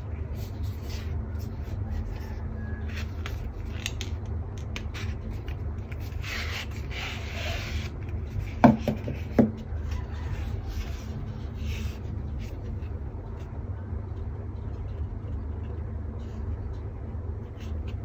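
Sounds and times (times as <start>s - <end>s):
low background hum: 0.0s - 18.0s
cardboard knocks on hard surface: 8.6s - 9.6s.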